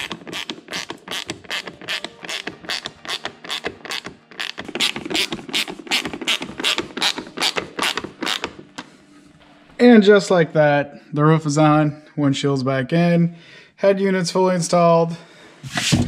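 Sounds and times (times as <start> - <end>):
hand ratchet clicking: 0.0 - 8.5.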